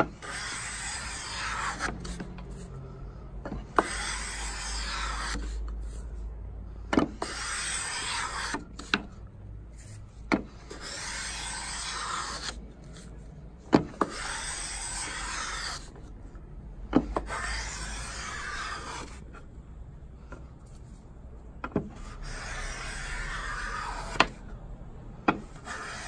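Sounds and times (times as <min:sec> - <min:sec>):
hand plane shaving wood: 0:00.2 - 0:02.6, 0:03.8 - 0:05.6, 0:07.2 - 0:08.6, 0:10.7 - 0:12.6, 0:14.0 - 0:15.9, 0:17.2 - 0:19.2, 0:22.0 - 0:24.4, 0:25.4 - 0:26.0.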